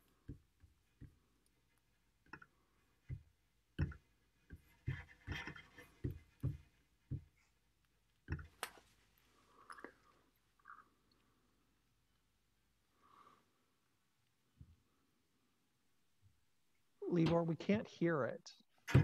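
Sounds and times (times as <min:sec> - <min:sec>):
handling knocks and clicks: 0:17.1 - 0:17.6.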